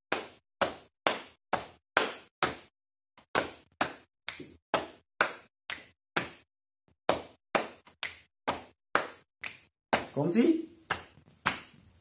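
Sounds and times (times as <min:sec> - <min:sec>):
hand claps: 0:00.1 - 0:06.5, 0:07.1 - 0:10.2, 0:10.9 - 0:11.8
finger snaps: 0:09.4 - 0:09.7.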